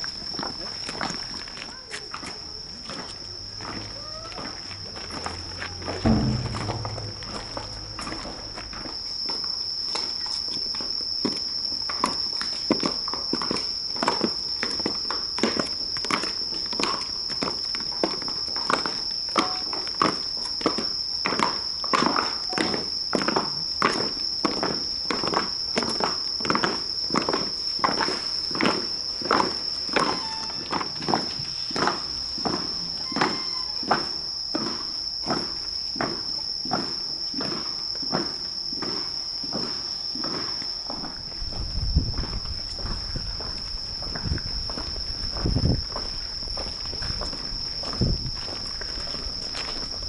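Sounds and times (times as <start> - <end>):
crickets trilling: 0.0 - 50.0
steady high tone: 6.0 - 8.6
hard-soled footsteps on stone: 42.1 - 50.0.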